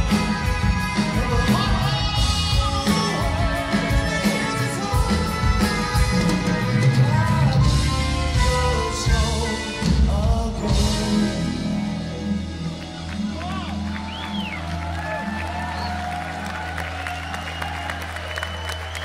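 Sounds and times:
male singer: 0:00.0 - 0:13.0
live progressive rock band: 0:00.0 - 0:19.0.

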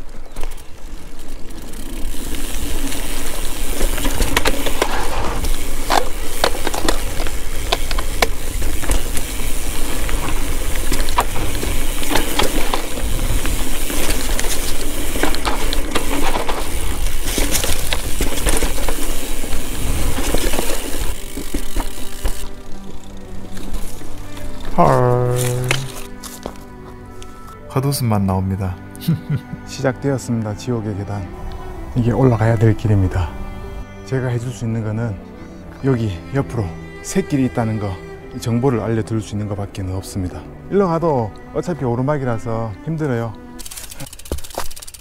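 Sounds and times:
mountain bike rumbling over trail: 0:00.0 - 0:26.5
bike rattling clicks and knocks: 0:00.0 - 0:26.6, 0:43.6 - 0:45.0.

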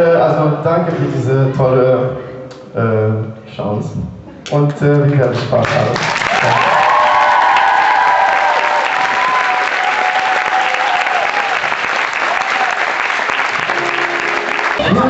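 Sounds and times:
audience applauding: 0:05.2 - 0:15.0
high cheering voices: 0:06.3 - 0:15.0.

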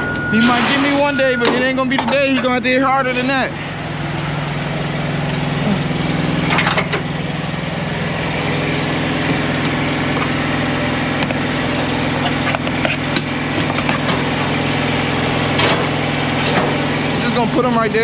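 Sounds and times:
small diesel engine running: 0:00.0 - 0:18.0.

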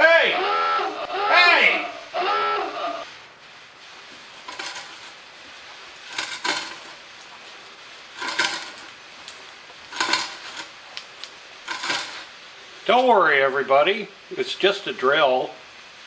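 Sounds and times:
hand-cranked auger scraping wood: 0:04.4 - 0:05.2, 0:06.0 - 0:07.0, 0:08.2 - 0:09.0, 0:09.9 - 0:10.7, 0:11.7 - 0:12.3.

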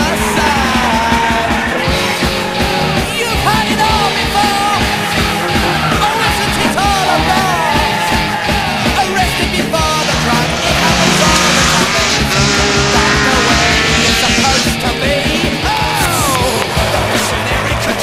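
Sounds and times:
person singing lead vocal: 0:00.0 - 0:18.0
rock music: 0:00.0 - 0:18.0
steady drum beat: 0:00.0 - 0:18.0.

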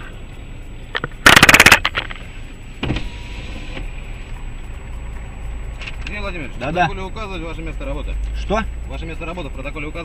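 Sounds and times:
rapid clicking rattle: 0:00.0 - 0:02.8
low hum of car: 0:00.0 - 0:10.0.

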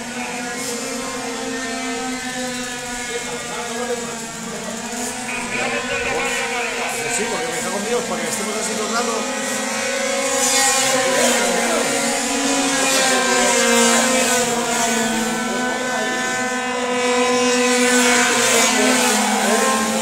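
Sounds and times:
racing scooter engines: 0:00.0 - 0:20.0.

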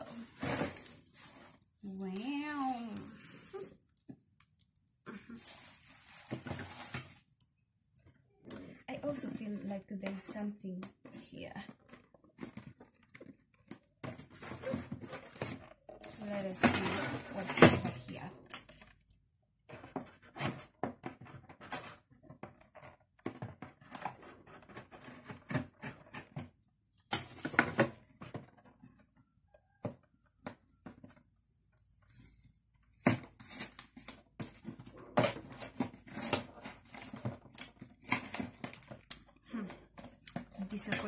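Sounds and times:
packaging rustling and crackling: 0:00.0 - 0:07.5, 0:31.8 - 0:41.0.

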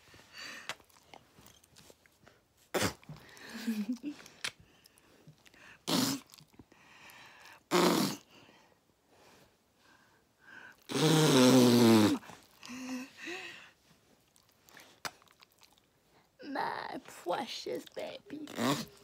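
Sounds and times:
lip fart noises: 0:02.7 - 0:03.2, 0:05.8 - 0:06.4, 0:07.7 - 0:08.2, 0:10.9 - 0:12.3, 0:18.4 - 0:19.0.

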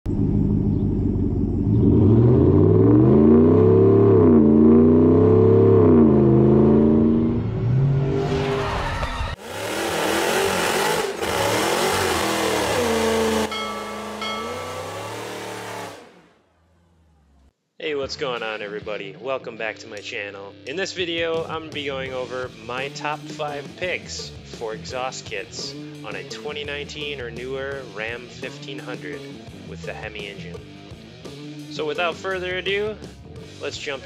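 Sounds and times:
car engine revving: 0:00.1 - 0:17.5.

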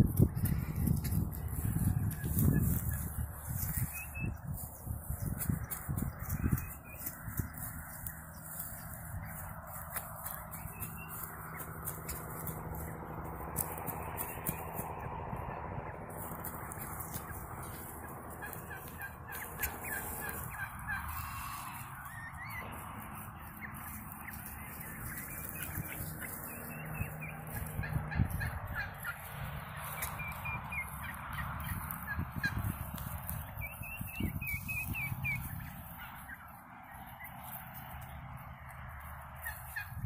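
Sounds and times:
turkey gobbling: 0:16.2 - 0:22.7, 0:23.5 - 0:38.1, 0:39.4 - 0:40.0.

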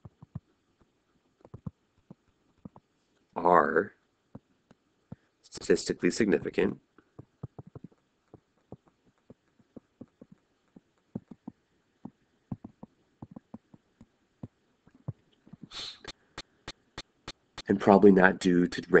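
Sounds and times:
stylus tapping on tablet: 0:00.0 - 0:00.5, 0:01.5 - 0:02.8, 0:07.2 - 0:13.8
brief hiss: 0:15.7 - 0:16.2.

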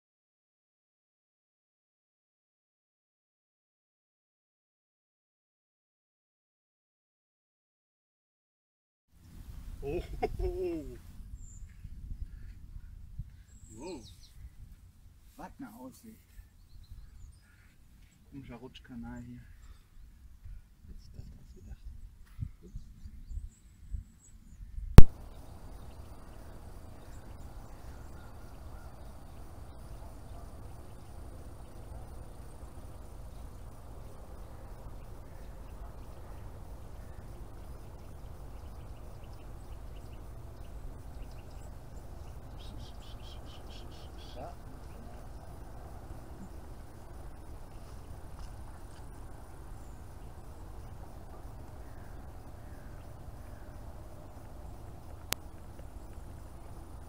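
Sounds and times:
low wind rumble on microphone: 0:09.2 - 0:15.2, 0:19.6 - 0:57.0
faint bird calls: 0:09.8 - 0:14.7, 0:15.4 - 0:18.5, 0:22.2 - 0:57.0.

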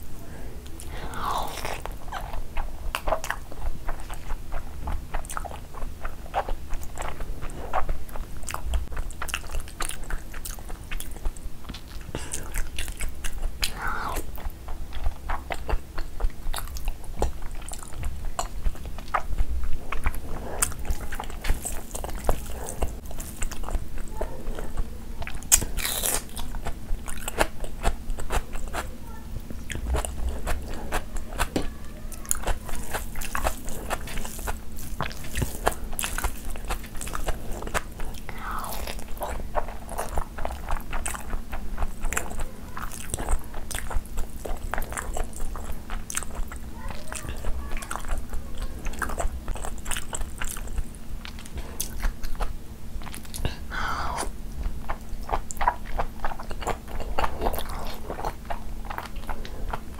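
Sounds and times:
person chewing: 0:00.0 - 0:28.9, 0:29.6 - 0:59.9.

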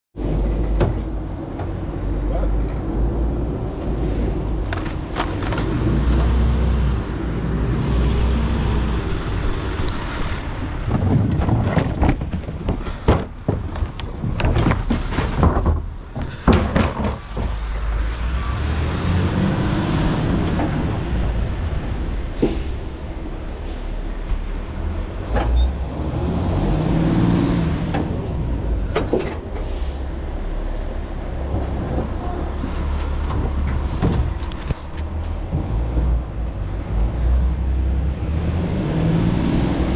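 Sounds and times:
sharp clanks and bangs: 0:10.8 - 0:17.9.

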